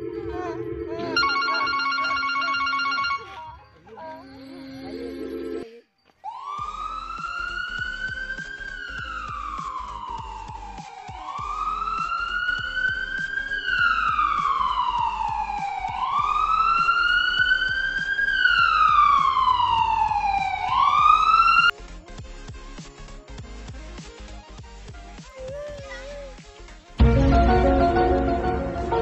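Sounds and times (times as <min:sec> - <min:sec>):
siren wailing: 0:00.0 - 0:03.6, 0:06.3 - 0:21.7.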